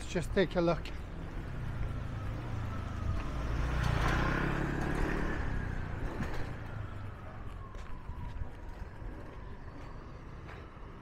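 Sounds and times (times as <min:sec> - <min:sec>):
motor vehicle passing by: 0:00.9 - 0:08.0.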